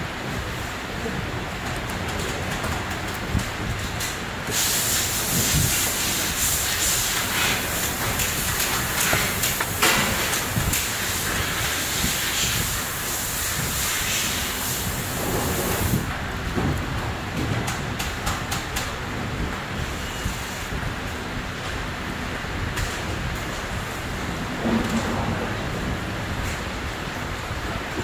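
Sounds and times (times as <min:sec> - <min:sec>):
steady loud hiss: 0:03.8 - 0:16.6.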